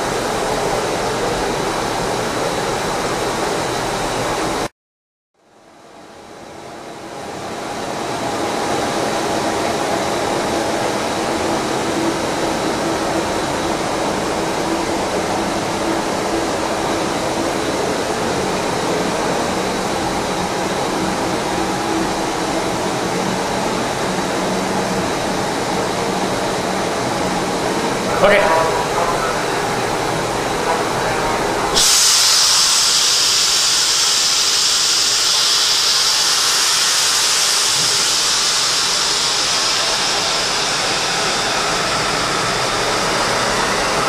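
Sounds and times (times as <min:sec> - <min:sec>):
mixer motor hissing and humming: 0:29.6 - 0:44.0.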